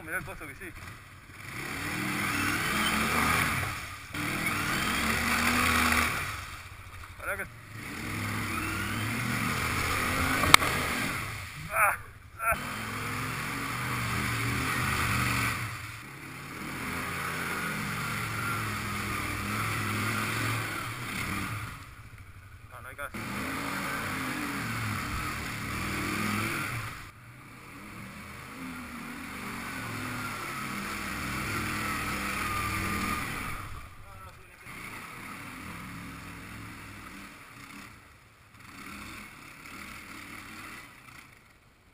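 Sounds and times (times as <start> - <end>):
quad bike engine under load: 0.0 - 41.7
water splashing around wheels: 0.8 - 27.2, 27.8 - 34.0.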